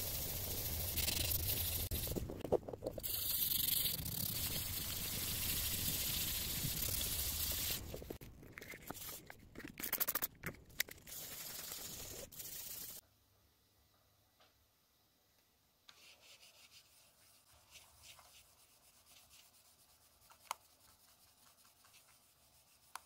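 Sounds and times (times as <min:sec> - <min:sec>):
scratchy rubbing on plastic: 0:16.0 - 0:23.0.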